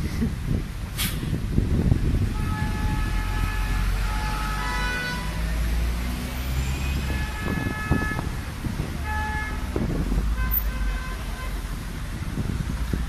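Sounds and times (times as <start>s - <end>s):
low rumble of engines: 0.0s - 13.0s
vehicle horns honking: 2.3s - 5.5s, 6.6s - 8.4s, 9.0s - 11.7s.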